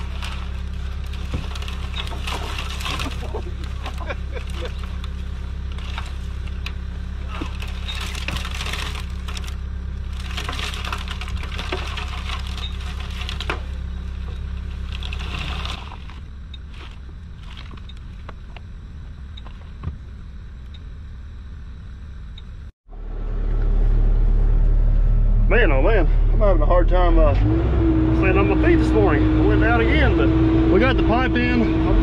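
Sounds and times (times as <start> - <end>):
dry grass crackling and rustling: 0.0 - 19.8
diesel engine running: 0.0 - 32.0.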